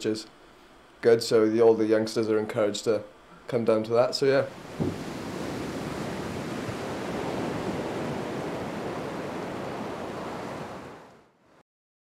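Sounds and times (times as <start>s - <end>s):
surf washing onto pebble shore: 4.5s - 11.2s.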